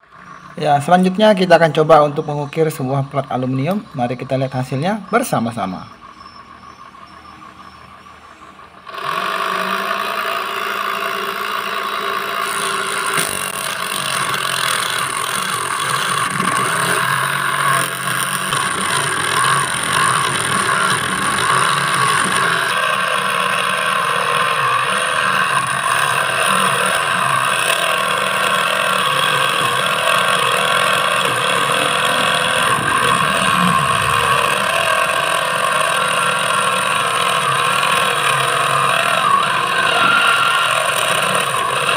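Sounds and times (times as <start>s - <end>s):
saw blade cutting metal: 8.4s - 41.9s.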